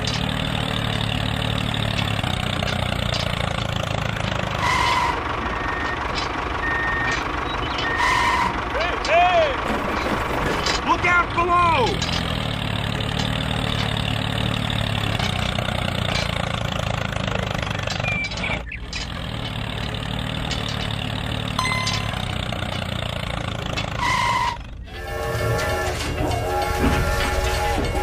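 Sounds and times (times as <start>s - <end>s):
tractor engine running: 0.0s - 28.0s
toy train electronic tones: 4.6s - 8.6s, 21.6s - 22.6s, 24.0s - 28.0s.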